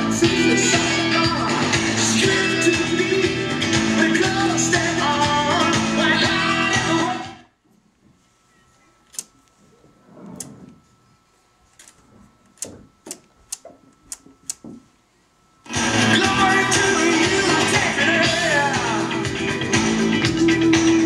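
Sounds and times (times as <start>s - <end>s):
music with guitar: 0.0s - 7.4s, 15.7s - 21.0s
rotary selector clicks: 9.1s - 9.4s, 12.6s - 14.6s.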